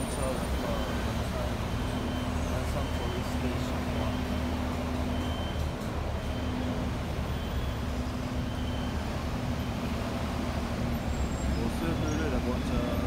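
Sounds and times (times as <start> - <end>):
car and bus engines rumbling: 0.0 - 13.0.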